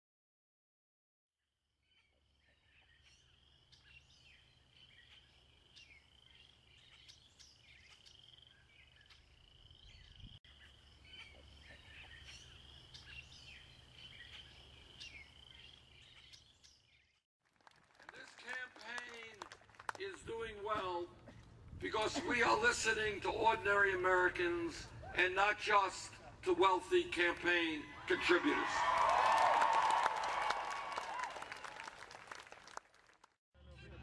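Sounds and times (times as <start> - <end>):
birds chirping: 1.9 - 17.2.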